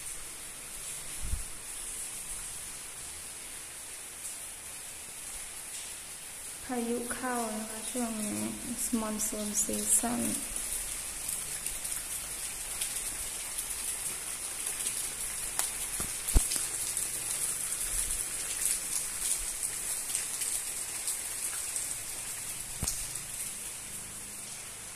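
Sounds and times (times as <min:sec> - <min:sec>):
heavy rain hissing: 0:00.0 - 0:24.9
rain drop ticks: 0:06.6 - 0:23.6.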